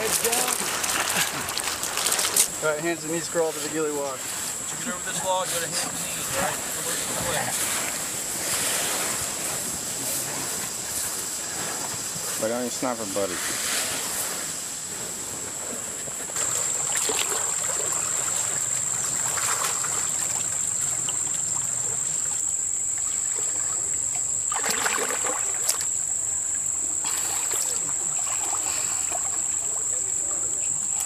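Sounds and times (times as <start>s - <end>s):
water sloshing and splashing: 0.0s - 30.2s.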